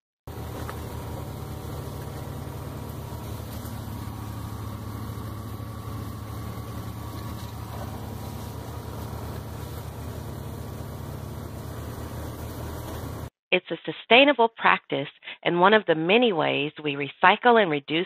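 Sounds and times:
small engine idling: 0.3 - 13.3.

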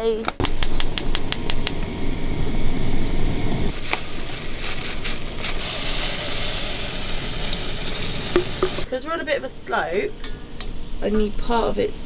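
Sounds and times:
gas igniter clicking: 0.4 - 1.9
gas burner low rumble: 0.4 - 8.9
milk hissing in hot pan: 3.7 - 8.9
oats poured into saucepan: 3.7 - 8.9.

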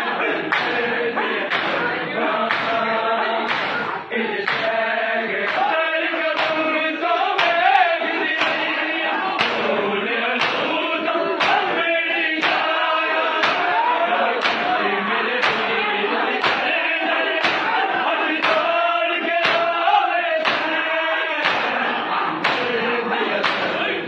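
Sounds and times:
men chanting together: 0.0 - 24.0
hands slapping chests: 0.5 - 0.8, 1.5 - 1.9, 2.5 - 2.8, 3.5 - 4.8, 6.4 - 6.7, 7.4 - 8.8, 9.4 - 9.7, 10.4 - 10.8, 11.4 - 11.7, 12.4 - 13.7, 14.4 - 14.8, 15.4 - 15.7, 16.4 - 16.7, 17.4 - 17.8, 18.4 - 18.8, 19.4 - 19.8, 20.4 - 20.8, 21.4 - 21.8, 22.4 - 22.8, 23.4 - 23.8.

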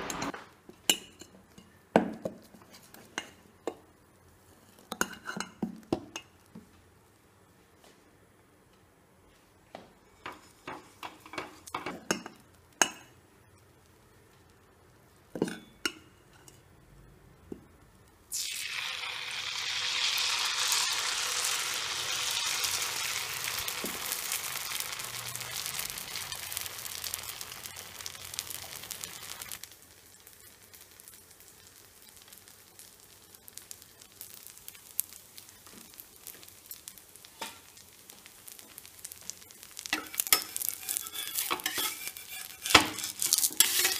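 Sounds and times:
batter sizzling on hot griddle: 10.0 - 16.9, 17.6 - 43.9
brush tapping pan: 39.9 - 43.9.

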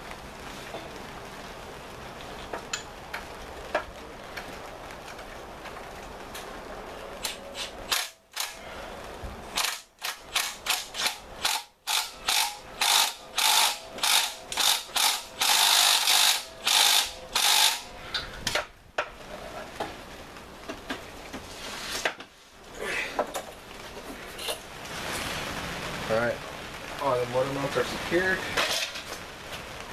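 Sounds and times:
ratchet wrench clicking: 9.6 - 17.9.

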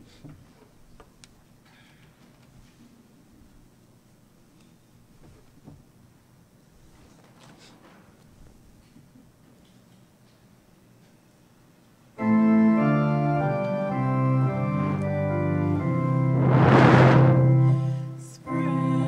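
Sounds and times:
organ playing sustained chords: 12.2 - 19.0.

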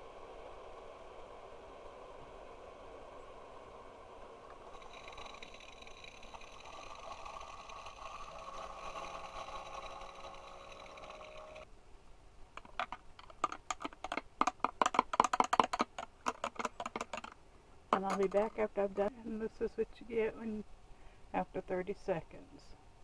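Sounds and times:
coffee machine hiss and hum: 0.0 - 11.7.

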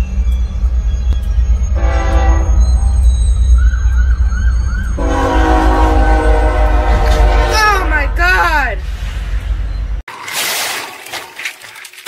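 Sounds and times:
locomotive air horn: 1.8 - 2.6, 5.0 - 8.2.

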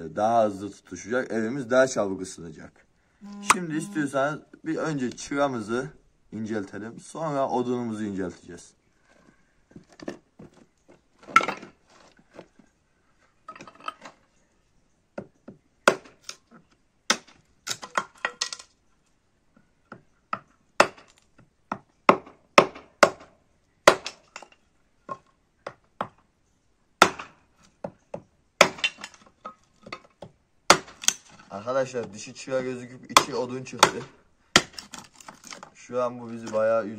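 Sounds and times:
hatchet chopping wood: 15.8 - 16.2, 17.1 - 18.1, 20.4 - 21.1, 21.7 - 24.2, 27.0 - 29.2, 30.7 - 31.3, 33.2 - 35.7.

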